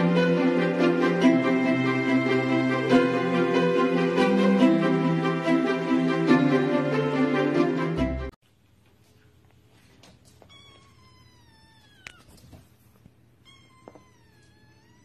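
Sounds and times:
music: 0.0 - 8.4
kitten meowing: 10.4 - 12.5, 13.4 - 15.0.

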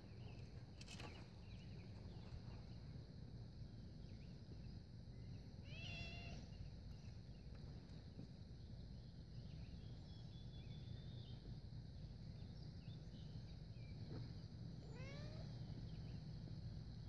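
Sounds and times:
faint bird chirps: 3.7 - 17.0.

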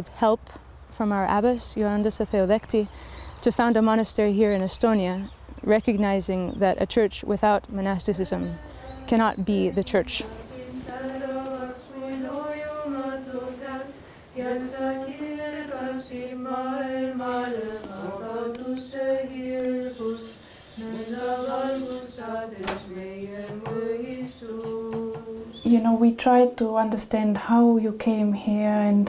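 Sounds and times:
liturgical chant: 8.2 - 25.8.

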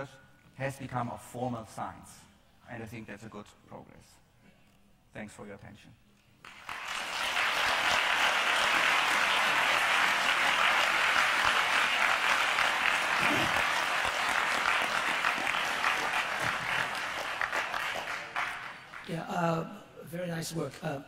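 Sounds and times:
audience applauding: 6.4 - 19.3.

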